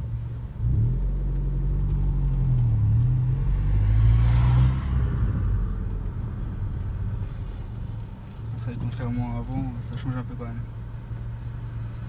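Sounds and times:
car engine revving under load: 0.0 - 9.9.

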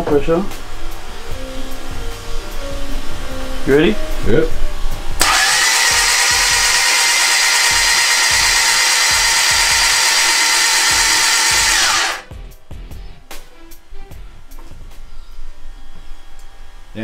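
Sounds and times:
starter motor cranking engine: 5.2 - 12.3.

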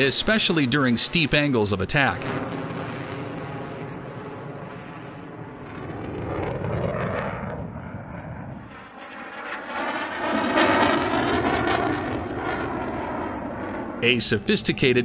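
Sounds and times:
jet fighter flying overhead: 0.0 - 15.0.

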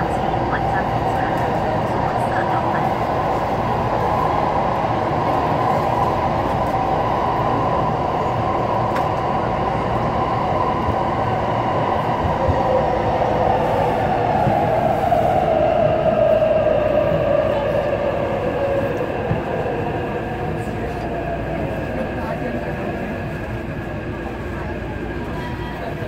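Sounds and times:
train rumbling in a tunnel: 0.0 - 26.0.

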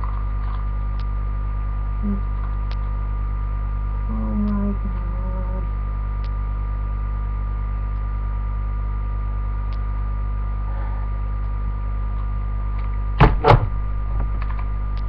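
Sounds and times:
electrical mains hum: 0.0 - 15.0
handling bumps on microphone: 13.2 - 14.7.

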